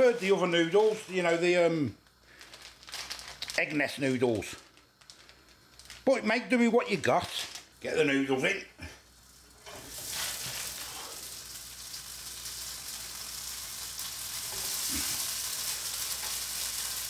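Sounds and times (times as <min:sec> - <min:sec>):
noodles sizzling in oil: 0:09.0 - 0:17.0.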